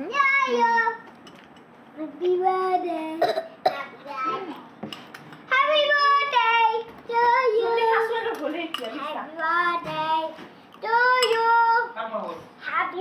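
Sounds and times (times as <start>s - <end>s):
child singing wordlessly: 2.0s - 3.3s, 5.5s - 8.2s, 9.4s - 12.0s
metal spoon clinking on bowl: 8.3s - 9.1s, 11.2s - 11.5s.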